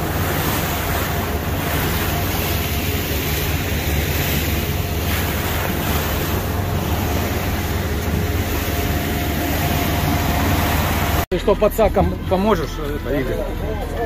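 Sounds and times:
wind buffeting microphone: 0.0 - 11.2
water rushing past hull: 0.0 - 13.7
boat engine running: 0.0 - 14.0.

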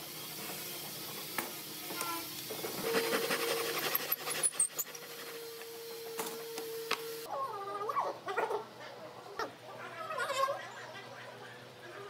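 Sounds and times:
hand saw rasping through wood: 2.7 - 5.7.

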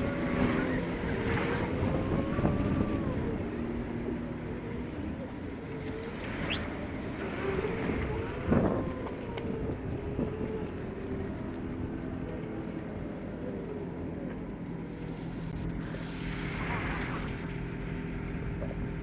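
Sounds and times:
wind on microphone: 0.0 - 12.9
tyres on wet road: 0.0 - 19.0
vehicle engines in slow traffic: 0.0 - 19.0.

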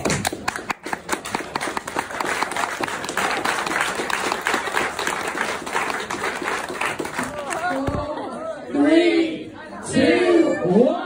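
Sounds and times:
people applauding: 0.0 - 8.0.

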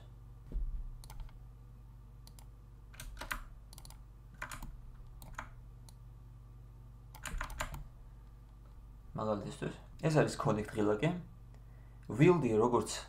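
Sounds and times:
steady low hum: 0.0 - 13.0
keyboard and mouse clicks: 1.0 - 1.4, 2.2 - 6.0, 7.1 - 7.8.

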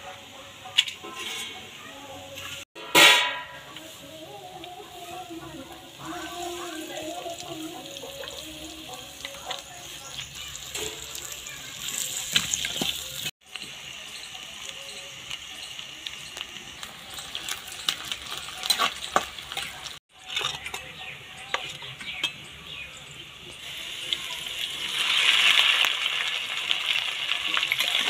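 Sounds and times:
onions sizzling in hot oil: 0.0 - 20.4, 23.3 - 28.0
crackles and pops: 14.7 - 20.0.

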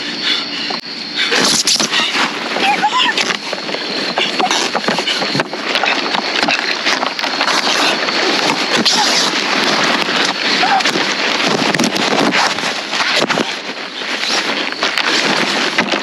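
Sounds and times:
person speaking: 1.8 - 3.5.

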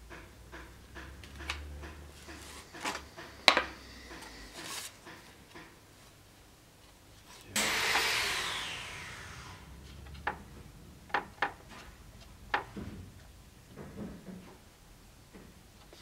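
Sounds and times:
items tapping on wooden workbench: 0.1 - 5.7.

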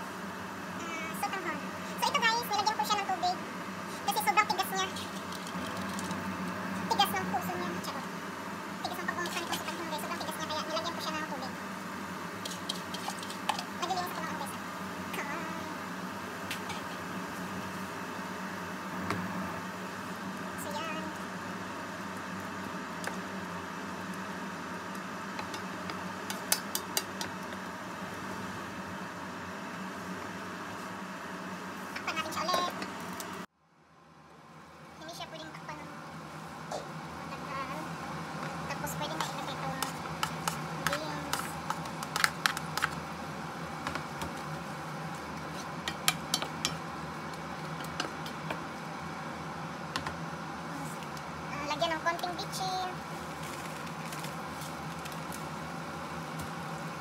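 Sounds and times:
spatula scraping frying pan: 12.4 - 13.6
wooden spatula stirring in pan: 39.2 - 43.0.

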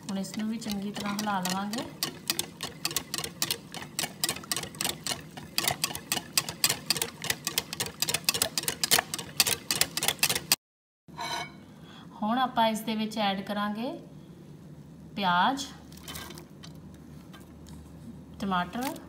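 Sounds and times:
whisk clicking against bowl: 0.0 - 10.6.

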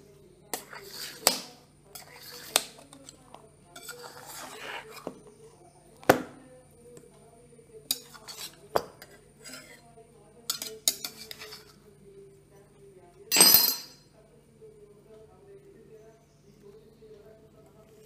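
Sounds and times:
knife clinking on steel plate: 10.5 - 11.7, 13.3 - 14.0.

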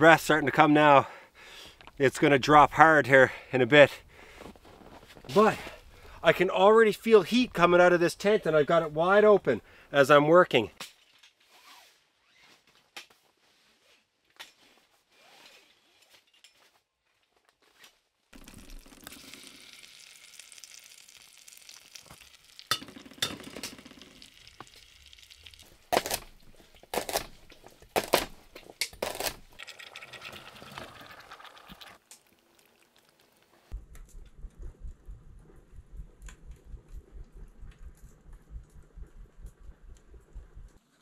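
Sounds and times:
food sizzling in pot: 18.4 - 26.2.

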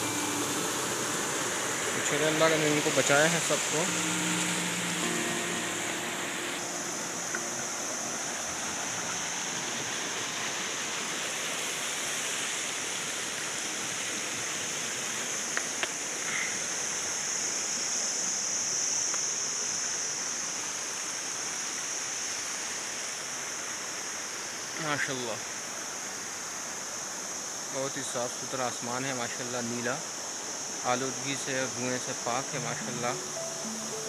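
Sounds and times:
stream rushing over boulders: 0.0 - 34.0.

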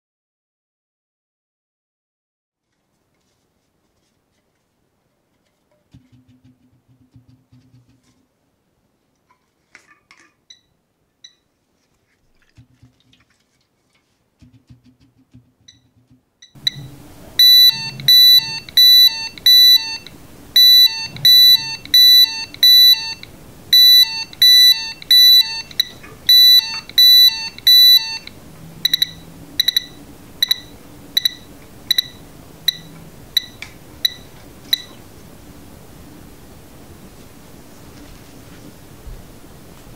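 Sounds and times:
alarm buzzer beeping: 16.6 - 35.0.

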